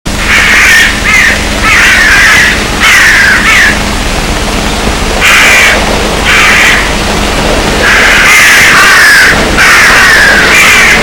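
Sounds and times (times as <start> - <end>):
crows cawing: 0.1 - 3.9, 5.2 - 7.0, 7.8 - 11.0.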